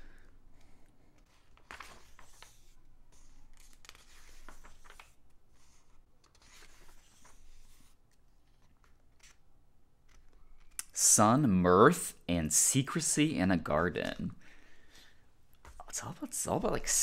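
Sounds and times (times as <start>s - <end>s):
magazine pages rustling: 1.1s - 10.8s.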